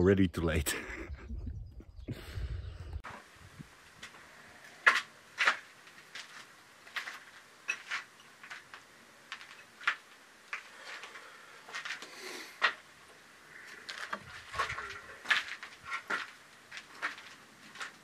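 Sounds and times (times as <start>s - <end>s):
footsteps on gritty stone floor: 4.8s - 12.8s, 13.7s - 18.0s.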